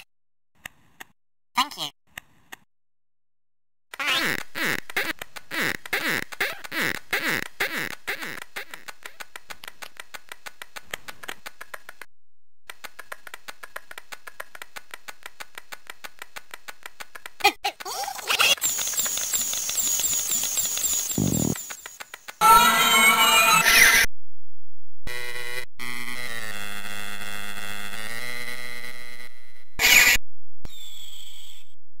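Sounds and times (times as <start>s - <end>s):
quick cartoon ticks: 18.4s - 22.4s
repeating high chirp: 18.6s - 22.0s.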